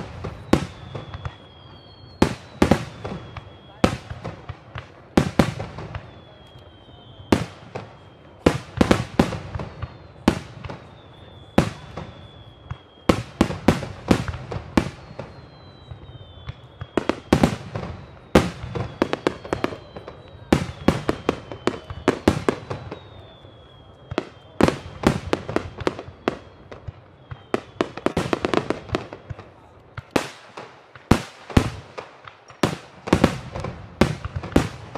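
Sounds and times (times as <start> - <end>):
high falling whistles: 0.2 - 3.8.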